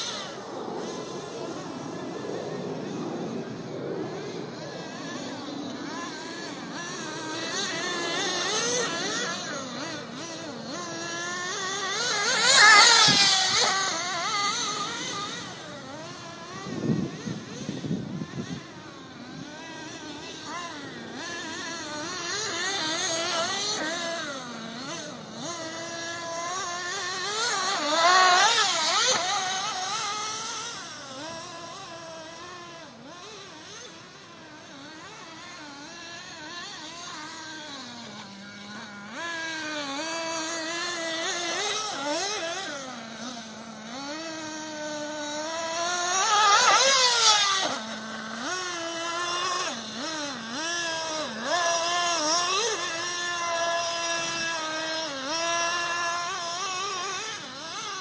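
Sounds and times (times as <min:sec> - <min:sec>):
toy car motor running hard: 0:00.0 - 0:58.0.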